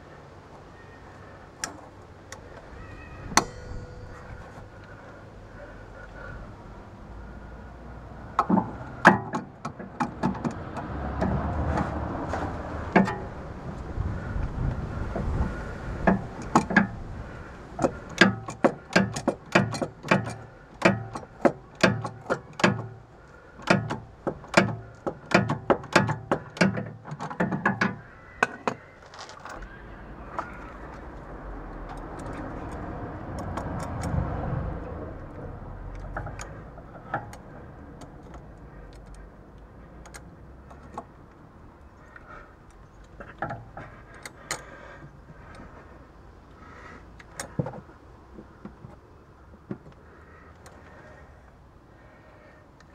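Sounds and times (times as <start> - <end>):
low steady hum: 0.0 - 9.8.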